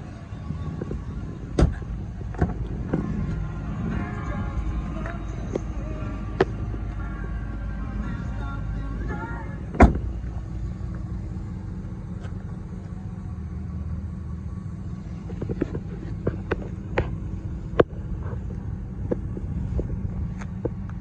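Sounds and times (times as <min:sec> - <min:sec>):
low steady rumble: 0:00.0 - 0:21.0
footsteps on asphalt: 0:12.0 - 0:13.1.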